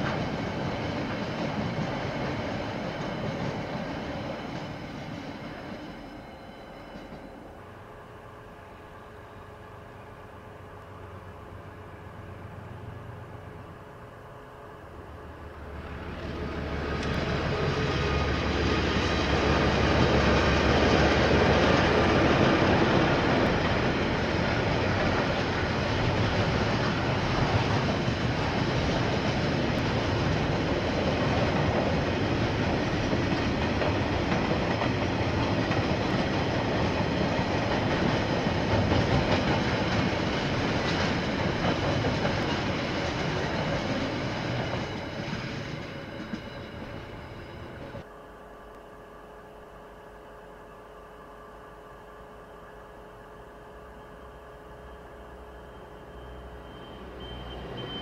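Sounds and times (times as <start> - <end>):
freight train wagons rolling: 0.0 - 7.8, 11.6 - 48.0.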